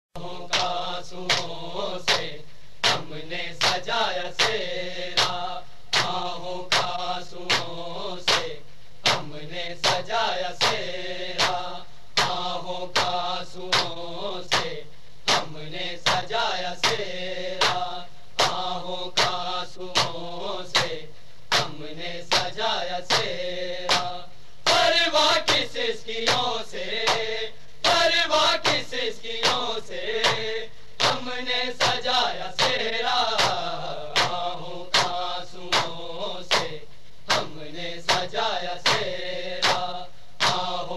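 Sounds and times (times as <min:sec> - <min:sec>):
male voices chanting a lament: 0:00.2 - 0:40.9
hands slapping chests: 0:17.6 - 0:18.6, 0:23.1 - 0:24.1, 0:26.3 - 0:27.3, 0:31.8 - 0:37.5, 0:38.1 - 0:40.7.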